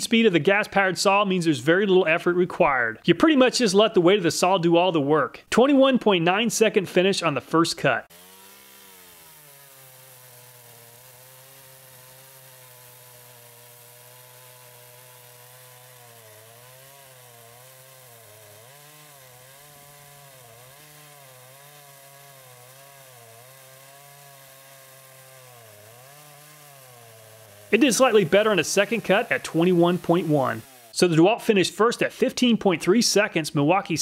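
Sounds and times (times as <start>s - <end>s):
chainsaw cutting log: 5.9s - 32.4s.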